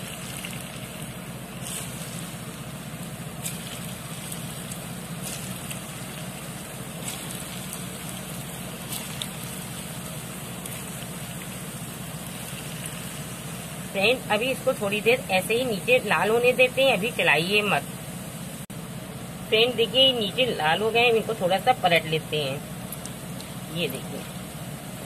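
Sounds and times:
balls sizzling in oil: 0:00.0 - 0:15.4.

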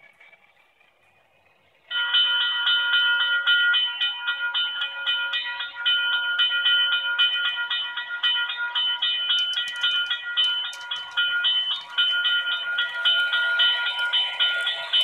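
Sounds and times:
electronic crossing bell ringing: 0:01.9 - 0:15.0.

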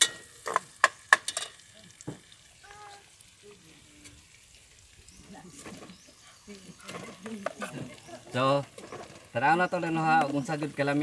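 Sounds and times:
faint sizzling in pot: 0:00.0 - 0:11.0.

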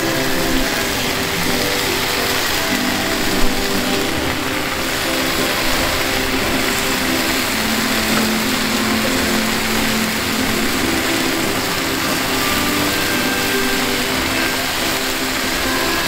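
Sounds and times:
food sizzling on a griddle: 0:00.0 - 0:16.0.

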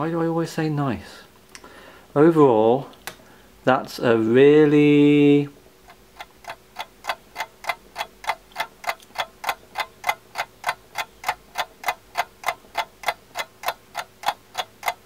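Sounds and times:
rapid mechanical ticking: 0:05.9 - 0:15.0.

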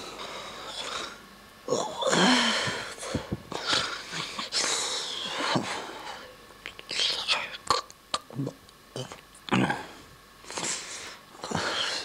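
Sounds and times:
person breathing hard and wheezing: 0:00.0 - 0:01.2, 0:01.9 - 0:06.4, 0:09.6 - 0:12.0
low vocal sound: 0:00.7 - 0:10.8.

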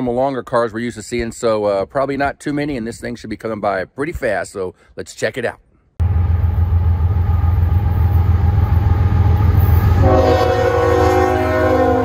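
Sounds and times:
locomotive rumble: 0:06.0 - 0:12.0
train air horn chord: 0:09.7 - 0:12.0.

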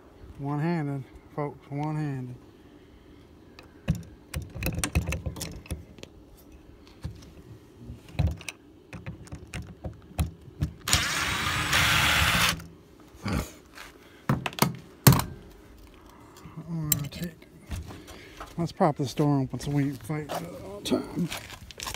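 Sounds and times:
power screwdriver running: 0:10.8 - 0:12.6.

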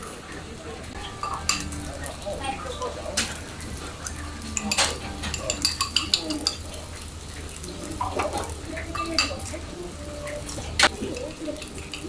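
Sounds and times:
food simmering and sizzling: 0:00.0 - 0:12.0
pot and dish clinks: 0:01.0 - 0:09.6
chopsticks clicking against bowl: 0:01.2 - 0:12.0.

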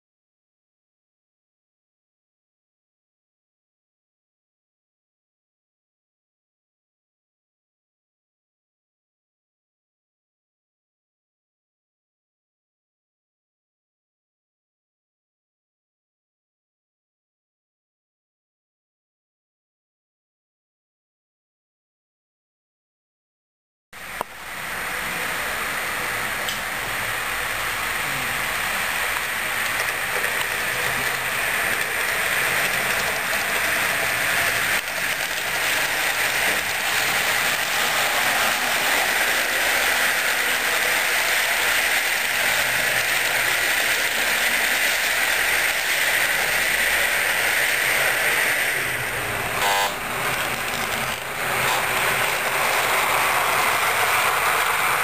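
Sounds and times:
running train rumble: 0:24.0 - 0:55.0
train horn toot: 0:49.6 - 0:50.0.

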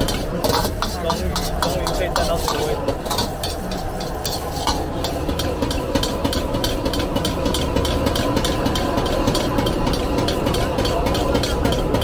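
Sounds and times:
gas burner rumble: 0:00.0 - 0:12.0
metal ladle scraping wok: 0:00.0 - 0:12.0.

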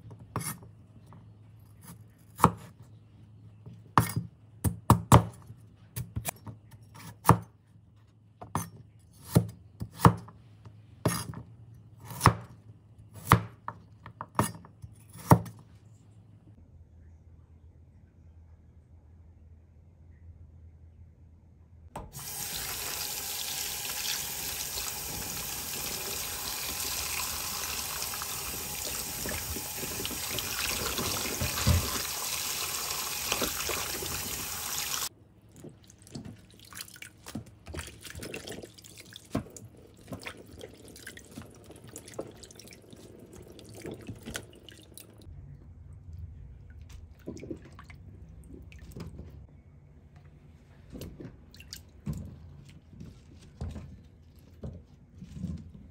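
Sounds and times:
tap water running into bowl: 0:22.0 - 0:35.1, 0:37.7 - 0:45.2.

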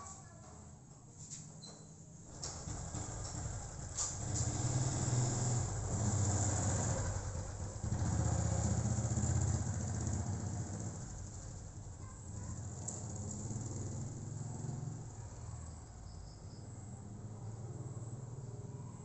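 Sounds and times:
vehicle engine running: 0:02.4 - 0:15.8.

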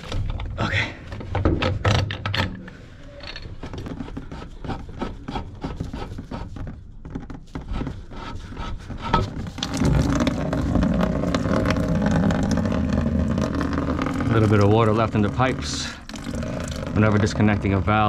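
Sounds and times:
pipe union scraping and clicking: 0:00.0 - 0:18.0
plastic bucket moved: 0:09.2 - 0:18.0
water splashing into bucket: 0:09.5 - 0:18.0.

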